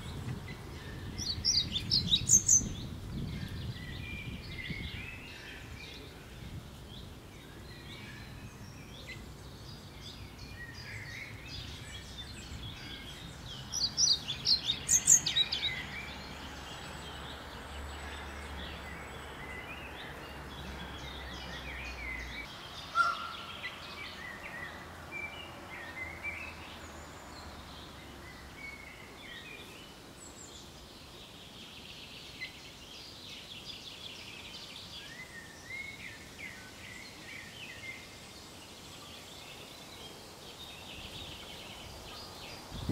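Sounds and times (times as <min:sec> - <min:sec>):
faint steady background noise: 0:00.0 - 0:42.9
songbirds singing: 0:00.0 - 0:42.9
sharp bird call: 0:22.9 - 0:23.6.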